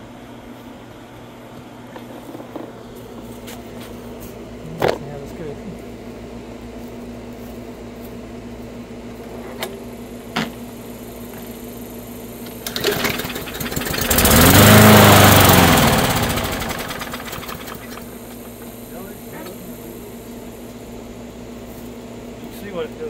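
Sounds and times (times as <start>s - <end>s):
lawn mower engine running: 9.8s - 22.4s
recoil starter rattling: 12.4s - 18.8s.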